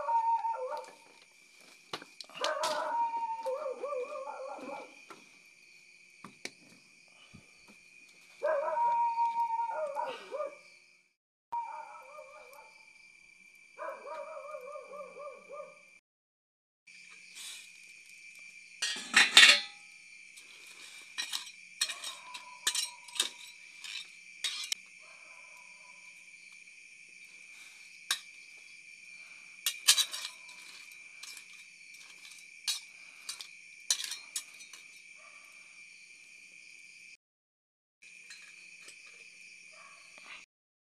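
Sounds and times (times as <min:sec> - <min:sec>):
crickets chirring: 0:00.0 - 0:16.0, 0:16.9 - 0:37.2, 0:38.0 - 0:40.5
ladle clinking in pot: 0:18.8 - 0:19.8, 0:21.2 - 0:24.8
lid clattering on pot: 0:18.8 - 0:19.8.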